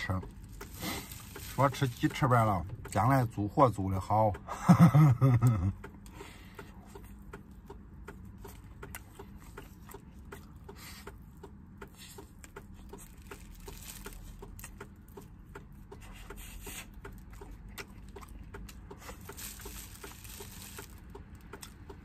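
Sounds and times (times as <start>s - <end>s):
man chewing and lip smacking: 5.4s - 22.0s.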